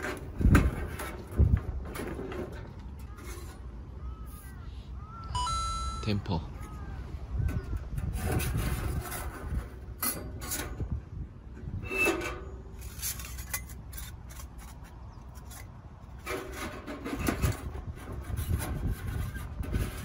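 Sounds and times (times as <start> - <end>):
wind buffeting microphone: 0.0 - 5.3, 6.4 - 12.3, 15.0 - 20.0
thin metal parts scraping and clinking: 11.9 - 17.8.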